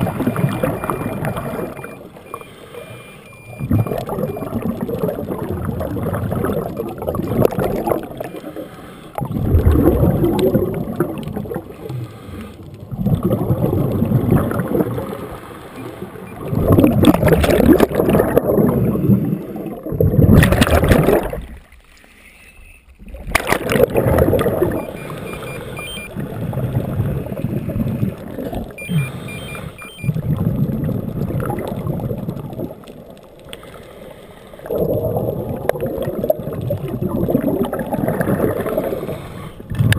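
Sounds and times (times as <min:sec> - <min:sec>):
exhaled air bubbling: 0:00.0 - 0:21.8, 0:23.0 - 0:39.9
diver breathing through regulator: 0:02.3 - 0:03.3, 0:08.4 - 0:09.3, 0:11.8 - 0:12.7, 0:28.8 - 0:30.1, 0:38.8 - 0:39.7.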